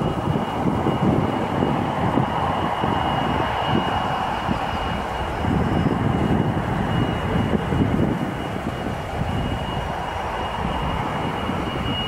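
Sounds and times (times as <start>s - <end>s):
jet engines rumbling with whine: 0.0s - 12.0s.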